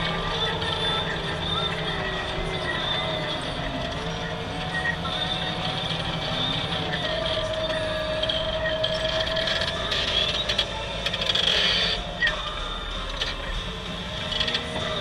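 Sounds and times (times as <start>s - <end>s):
tractor engine droning: 0.0s - 15.0s
wavering whine: 0.0s - 15.0s.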